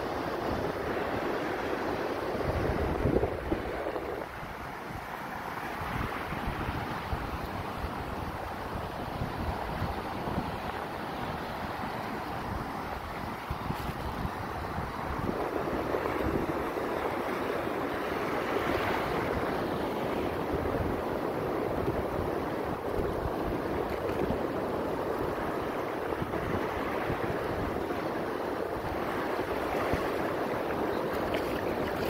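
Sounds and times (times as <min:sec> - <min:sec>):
small waves washing on sand: 0:00.0 - 0:32.0
wind buffeting microphone: 0:02.2 - 0:05.0, 0:12.4 - 0:32.0.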